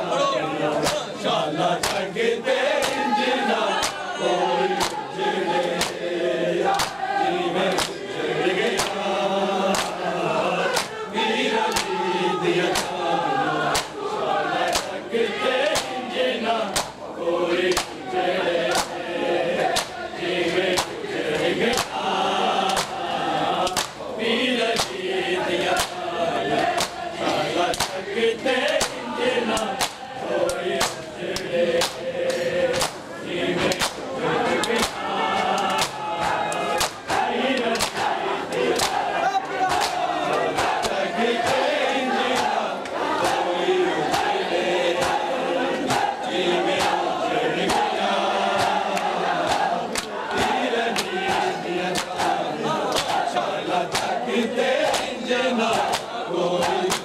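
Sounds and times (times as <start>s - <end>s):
men chanting together: 0.0s - 57.0s
hands slapping bare chests: 0.8s - 1.1s, 1.8s - 2.1s, 2.8s - 3.1s, 3.7s - 4.1s, 4.7s - 5.0s, 5.6s - 6.0s, 6.6s - 7.0s, 7.7s - 8.0s, 8.7s - 9.0s, 9.7s - 10.0s, 10.6s - 11.0s, 11.7s - 12.0s, 12.7s - 13.0s, 13.7s - 14.0s, 14.7s - 15.0s, 15.6s - 16.0s, 16.7s - 17.0s, 17.7s - 18.0s, 18.7s - 19.0s, 19.6s - 20.0s, 20.7s - 22.0s, 22.6s - 23.0s, 23.6s - 24.0s, 24.8s - 25.0s, 25.7s - 26.0s, 26.6s - 28.0s, 28.7s - 33.0s, 33.6s - 35.0s, 35.6s - 43.4s, 44.0s - 44.4s, 46.8s - 47.1s, 47.7s - 47.9s, 48.6s - 53.3s, 53.9s - 54.2s, 54.8s - 57.0s.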